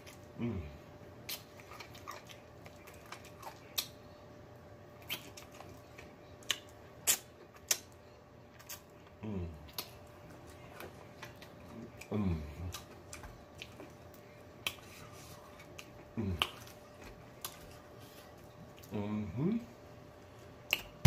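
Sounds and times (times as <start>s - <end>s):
person humming mmm: 0.4s - 0.8s, 9.2s - 9.7s, 11.9s - 12.8s, 16.1s - 16.6s
wet lip smacks while eating: 5.0s - 5.7s, 6.4s - 8.0s.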